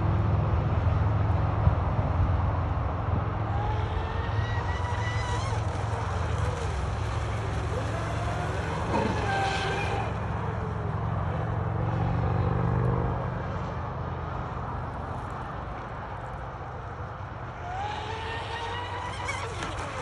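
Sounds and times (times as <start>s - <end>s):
electric motor whining: 3.5s - 10.6s, 17.6s - 20.0s.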